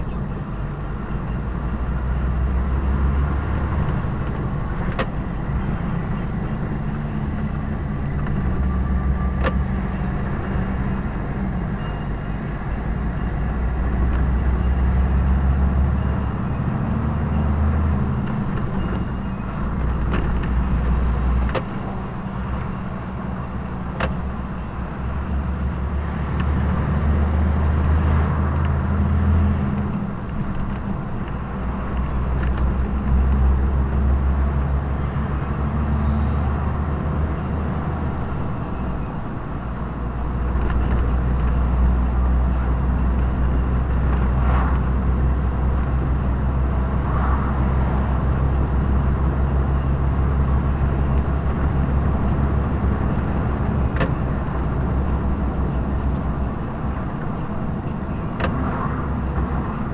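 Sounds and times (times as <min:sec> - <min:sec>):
road noise: 0:00.0 - 0:59.9
truck diesel engine droning: 0:00.0 - 0:59.9.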